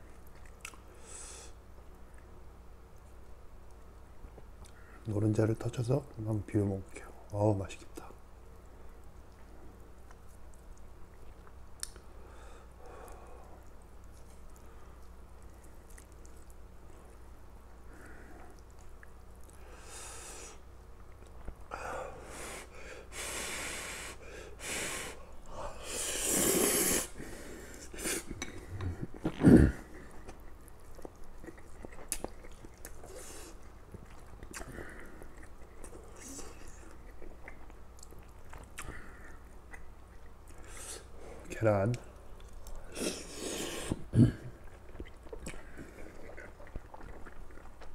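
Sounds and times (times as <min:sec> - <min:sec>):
chewing: 0:00.0 - 0:00.8, 0:13.0 - 0:19.6, 0:28.3 - 0:40.9, 0:41.9 - 0:47.9
noisy breathing through nose: 0:00.9 - 0:01.6, 0:19.6 - 0:20.6, 0:21.8 - 0:28.3, 0:40.6 - 0:41.4
man slurping noodles: 0:25.8 - 0:27.2, 0:42.9 - 0:44.3.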